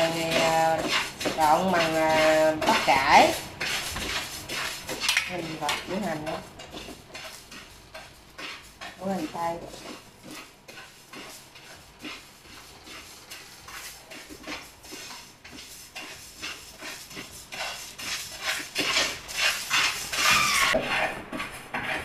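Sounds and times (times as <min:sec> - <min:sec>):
knife scraping onion skin: 0:14.9 - 0:21.2.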